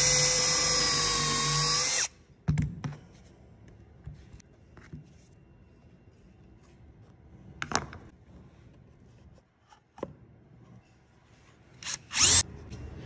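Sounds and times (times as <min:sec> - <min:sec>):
cordless drill drilling wood: 0:00.0 - 0:02.1, 0:11.8 - 0:12.4.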